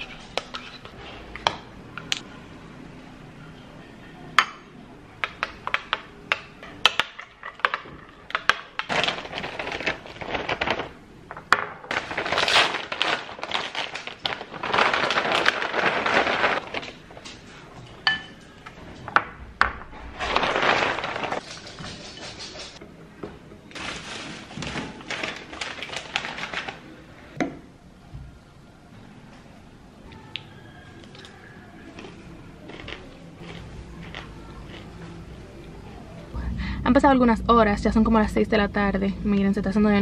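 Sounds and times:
dishes and glassware clinking: 0:04.4 - 0:06.0, 0:17.2 - 0:19.2.

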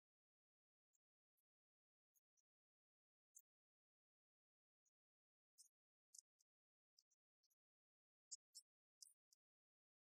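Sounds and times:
faint high-pitched ticks: 0:00.0 - 0:10.0.

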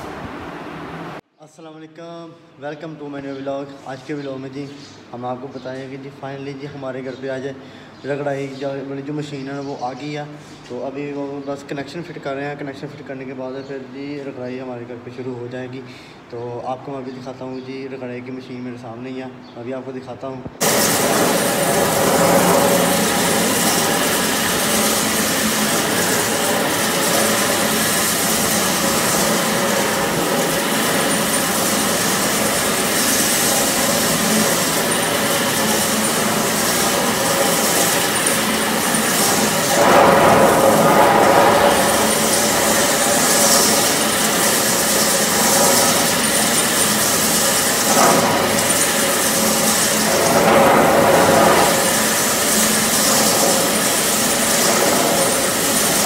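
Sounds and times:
floor grinding machine whirring: 0:20.6 - 0:56.0.

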